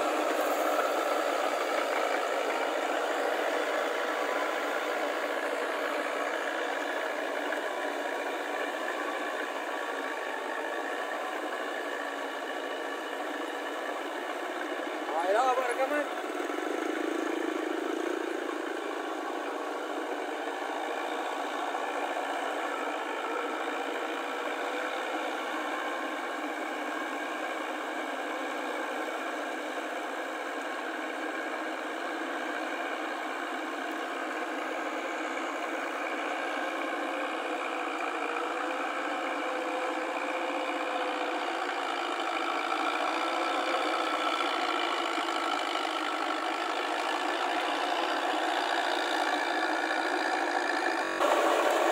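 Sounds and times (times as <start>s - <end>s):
tractor engine running: 0.0s - 51.9s.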